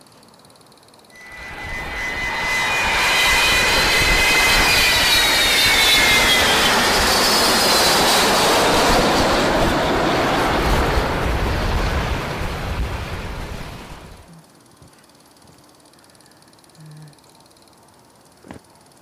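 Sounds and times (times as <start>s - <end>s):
jet aircraft roar: 1.1s - 14.3s
high whine falling in pitch: 1.1s - 14.6s.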